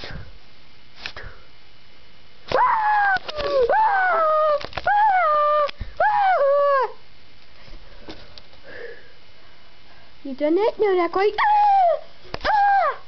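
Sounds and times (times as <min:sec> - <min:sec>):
person screaming: 0:02.5 - 0:07.0, 0:11.5 - 0:13.0.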